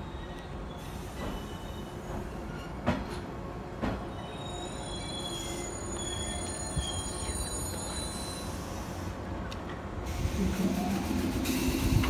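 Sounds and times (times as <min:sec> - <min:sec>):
electric train running rumble: 0:00.0 - 0:12.0
high wheel squeal: 0:04.2 - 0:09.1
sharp train clacks: 0:10.4 - 0:12.0.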